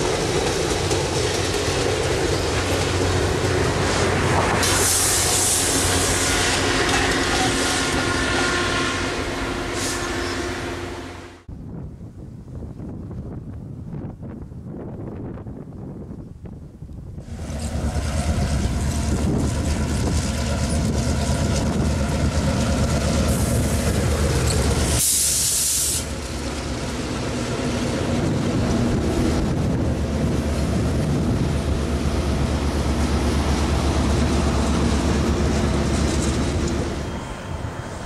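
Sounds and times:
diesel locomotive engine humming: 0:00.0 - 0:11.8, 0:17.1 - 0:38.0
train wheels rumbling on rail: 0:00.0 - 0:38.0
loud hiss: 0:04.6 - 0:06.4, 0:23.2 - 0:26.2.

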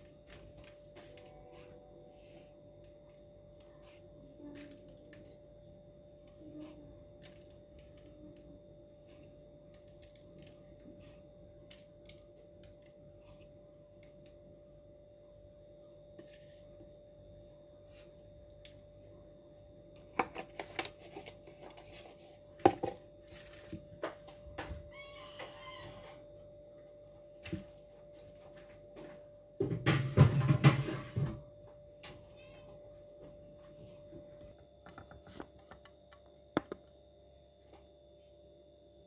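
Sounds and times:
faint hum: 0:00.0 - 0:39.0
objects being handled: 0:34.0 - 0:36.8.

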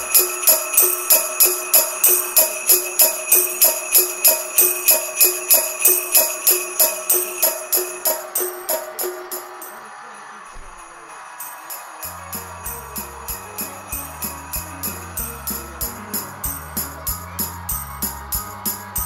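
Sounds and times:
sleigh bells shaking in rhythm: 0:00.0 - 0:19.0
held tones: 0:11.4 - 0:19.0.

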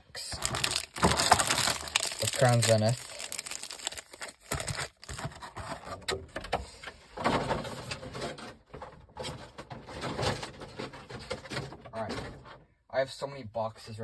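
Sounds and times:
foil wrappers crinkling: 0:00.2 - 0:05.8.

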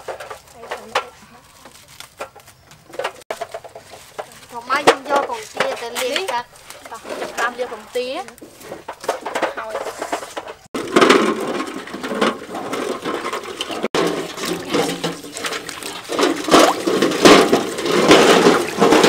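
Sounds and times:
water sloshing in steel basin: 0:10.8 - 0:19.0
eggs scrubbed with scouring pads: 0:12.9 - 0:19.0.

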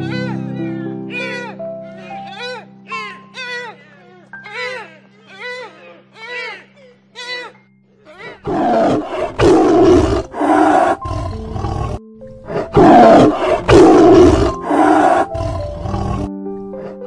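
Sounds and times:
lion roaring: 0:08.3 - 0:16.3.

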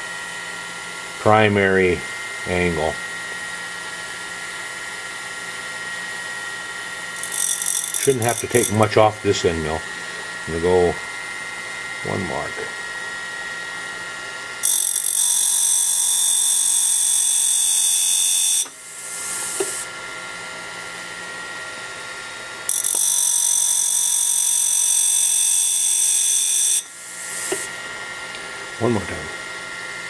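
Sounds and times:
high-pitched metal grinding: 0:07.2 - 0:09.5, 0:22.7 - 0:27.7
grinding wheel motor hum: 0:07.2 - 0:11.0.

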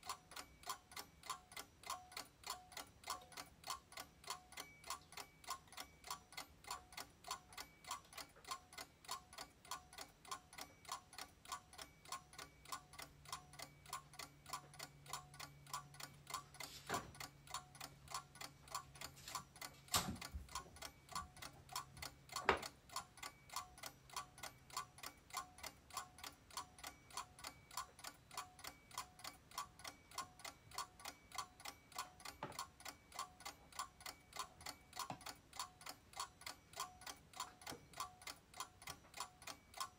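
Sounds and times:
mechanical ticking: 0:00.0 - 0:39.9.

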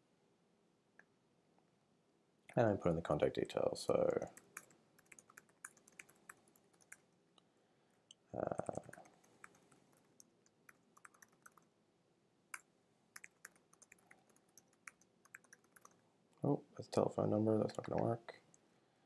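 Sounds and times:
keyboard typing clicks: 0:04.0 - 0:07.0, 0:08.5 - 0:11.6, 0:12.6 - 0:16.0.

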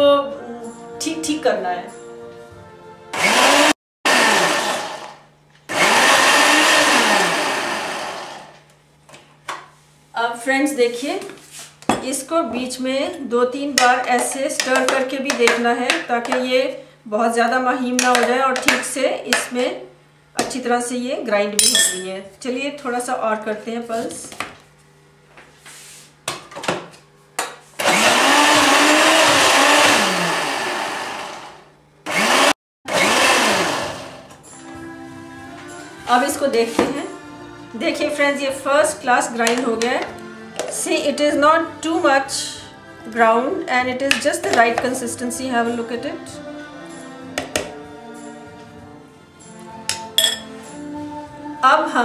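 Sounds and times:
mixer grinder motor running: 0:03.1 - 0:08.6, 0:27.8 - 0:34.4.

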